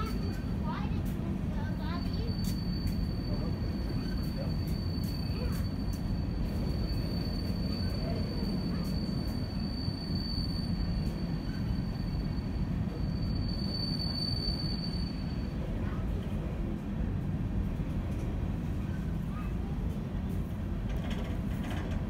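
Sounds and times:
freight train rumbling: 0.0s - 22.0s
high-pitched wheel squeal: 1.8s - 15.6s.

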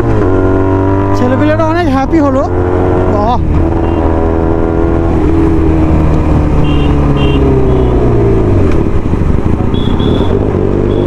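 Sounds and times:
motorcycle engine running: 0.0s - 11.0s
short high beeps: 9.7s - 11.0s.

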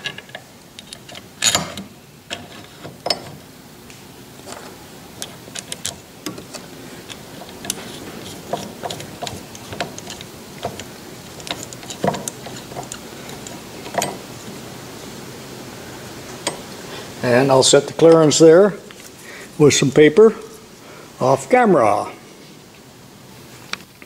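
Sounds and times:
metal gears clicking and clinking: 8.8s - 14.2s.

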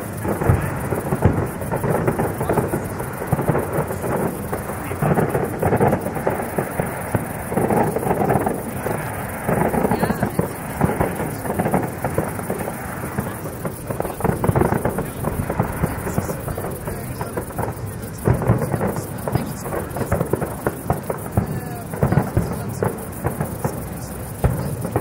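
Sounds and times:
fireworks booming: 0.0s - 25.0s
fireworks crackling: 0.0s - 25.0s.

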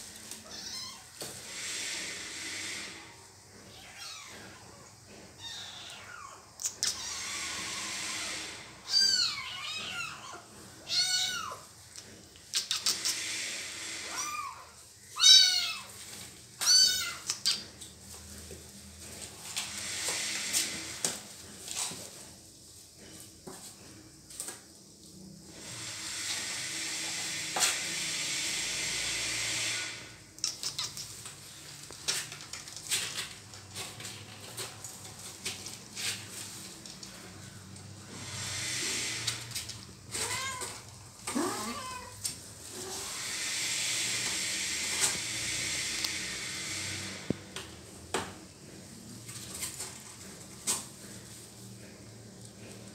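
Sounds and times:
kitten meowing: 16.6s - 17.3s.

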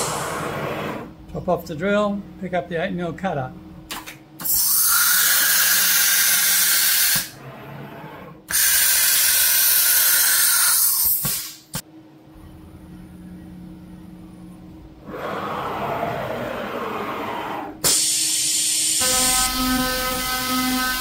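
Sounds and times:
compressed air hissing: 0.0s - 1.1s, 8.5s - 11.8s, 17.8s - 19.5s
low machine hum: 0.0s - 4.4s, 11.8s - 17.8s.

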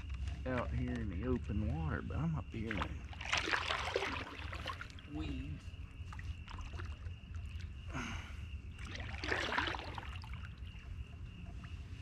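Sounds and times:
kayak paddle splashing: 2.7s - 5.4s, 6.1s - 7.8s, 8.7s - 10.9s.

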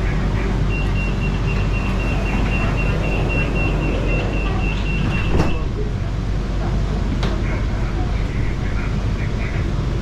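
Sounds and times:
train low hum: 0.0s - 10.0s
short high warning beeps: 0.7s - 5.6s
doors sliding shut: 0.8s - 5.8s.

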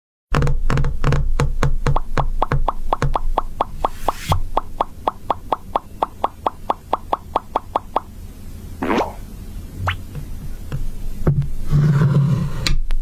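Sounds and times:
fingertips tapping on wooden board: 0.4s - 8.1s.

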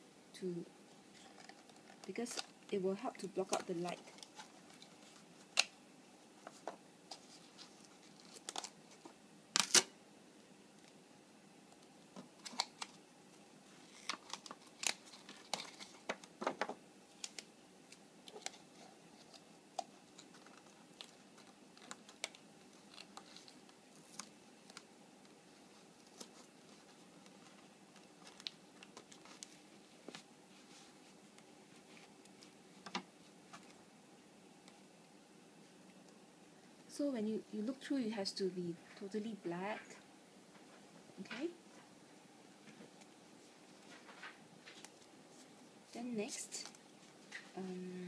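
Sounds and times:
tape crackling: 1.0s - 10.0s, 11.7s - 33.9s, 42.6s - 48.0s
paper crinkling: 1.1s - 2.6s, 3.2s - 5.7s, 6.4s - 9.9s, 13.7s - 16.3s, 17.1s - 33.8s, 42.8s - 45.5s.

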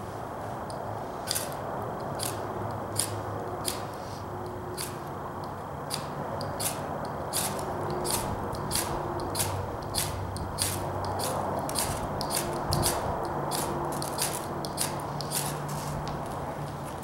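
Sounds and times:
knife scraping ferro rod: 5.9s - 16.1s.

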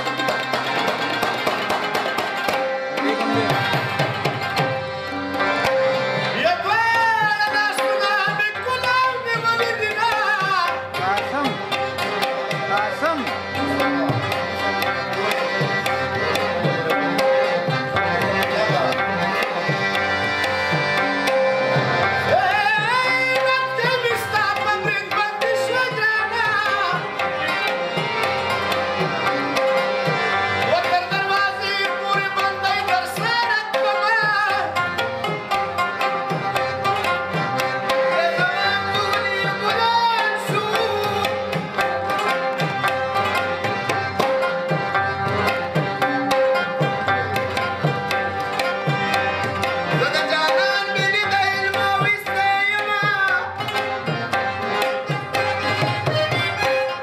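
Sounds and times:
folk music with tabla: 0.0s - 57.0s
man singing: 2.9s - 4.2s, 5.3s - 20.0s, 20.7s - 27.7s, 29.0s - 36.2s, 36.8s - 42.4s, 49.6s - 57.0s.

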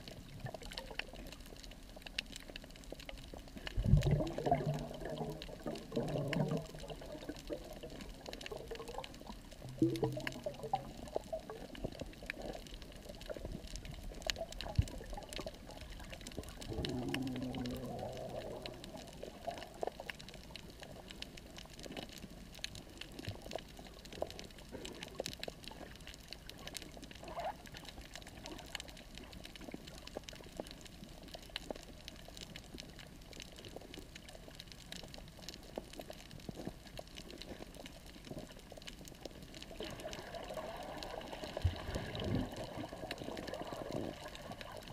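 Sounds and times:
soft watery hiss: 0.0s - 44.9s
snapping shrimp crackle: 6.6s - 40.1s.

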